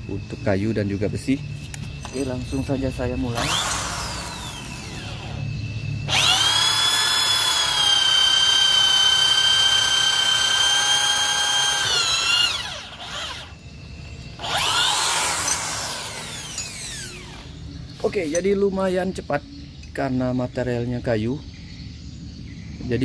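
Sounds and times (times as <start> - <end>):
electric drill boring into wood: 3.3 - 5.4, 6.1 - 13.6, 14.4 - 17.6.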